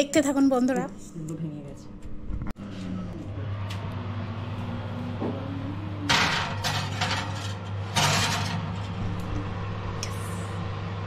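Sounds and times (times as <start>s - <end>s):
steady low hum: 0.0s - 11.0s
glass dish scraping on oven rack: 6.1s - 9.2s.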